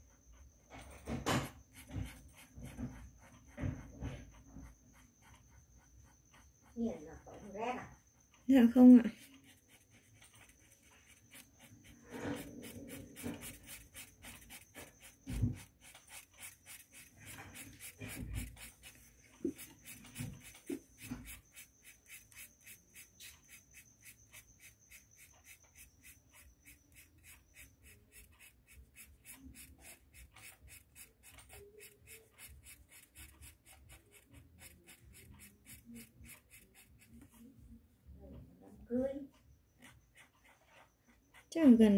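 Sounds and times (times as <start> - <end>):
pencil scratching on paper: 0.0 - 37.8, 39.7 - 41.9
knocks and rustles: 0.7 - 4.8, 12.1 - 16.2.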